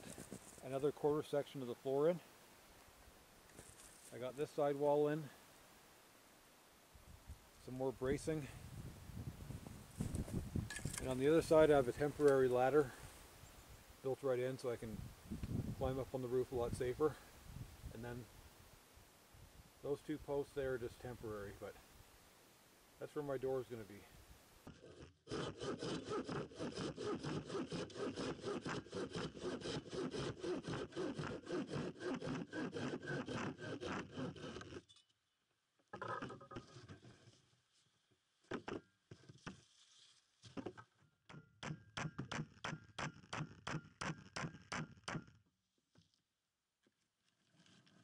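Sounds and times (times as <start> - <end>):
handsaw cutting wood: 24.7 - 34.8.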